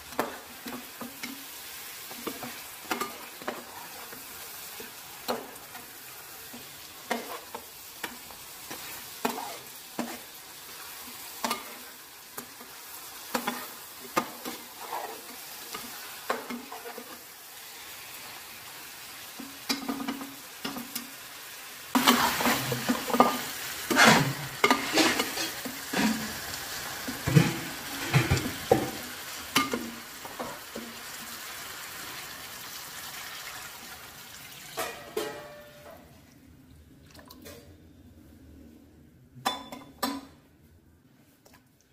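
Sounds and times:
meat sizzling in oil: 0:00.0 - 0:34.8
metal ladle scraping a pot: 0:23.9 - 0:26.4.

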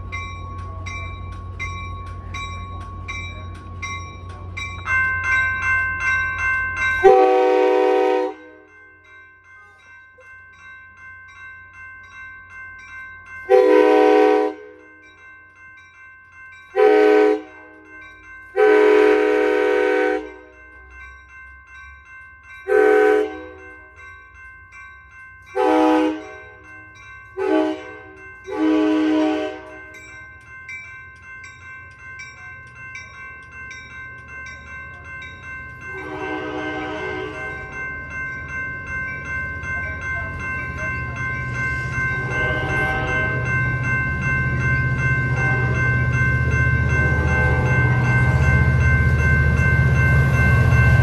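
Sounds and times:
train rumble: 0:00.0 - 0:08.8, 0:25.5 - 0:51.0
crossing bells ringing: 0:00.0 - 0:51.0
locomotive air horn blasts: 0:07.0 - 0:08.6, 0:13.5 - 0:14.7, 0:16.8 - 0:17.5, 0:18.6 - 0:20.4, 0:22.7 - 0:23.5, 0:25.6 - 0:26.3, 0:27.4 - 0:29.7, 0:36.0 - 0:37.5, 0:42.3 - 0:43.4.

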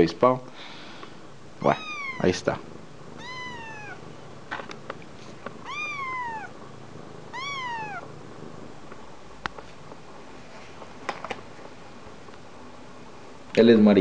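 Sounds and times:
kitten meowing: 0:01.6 - 0:02.4, 0:03.2 - 0:04.0, 0:05.6 - 0:06.5, 0:07.3 - 0:08.1.

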